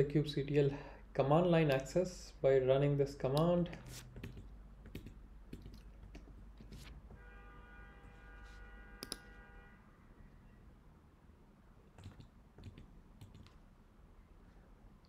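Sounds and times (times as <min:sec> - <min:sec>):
faint computer clicks: 0:09.0 - 0:09.3
mouse click: 0:09.0 - 0:09.3.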